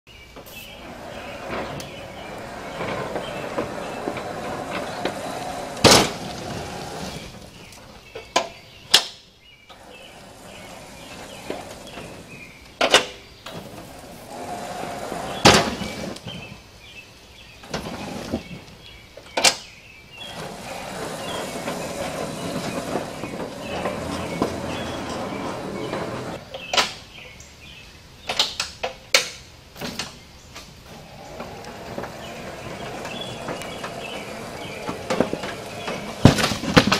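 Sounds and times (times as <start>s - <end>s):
tractor ramming wood: 0.6s - 7.7s, 20.2s - 26.9s, 31.2s - 36.9s.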